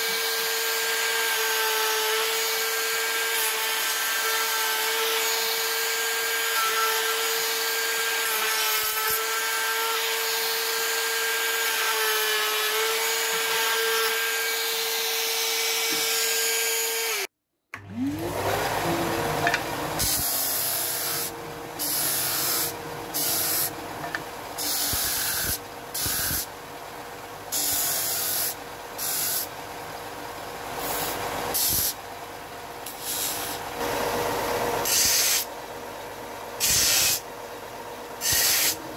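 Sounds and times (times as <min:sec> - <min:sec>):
router whining through wood: 0:00.0 - 0:26.5, 0:38.2 - 0:38.9
belt and disc sander humming: 0:03.1 - 0:37.3
bursts of sanding wood: 0:18.8 - 0:23.9.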